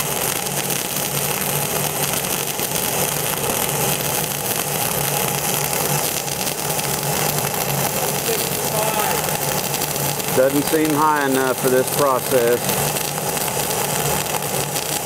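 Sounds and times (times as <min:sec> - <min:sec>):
welding arc running: 0:00.0 - 0:15.0.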